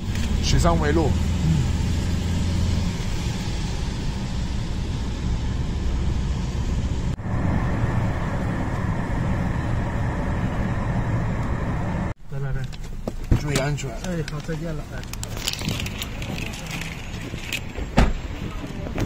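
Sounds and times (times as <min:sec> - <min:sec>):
car road noise on wet road: 0:00.0 - 0:12.2, 0:13.2 - 0:19.0
low hum: 0:00.0 - 0:12.2.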